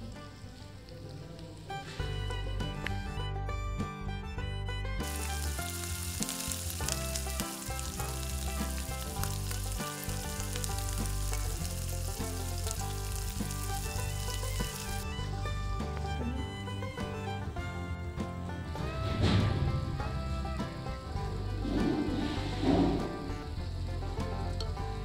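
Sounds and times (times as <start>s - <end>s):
food sizzling in a pan: 0.0s - 2.3s, 5.0s - 15.4s, 19.9s - 25.0s.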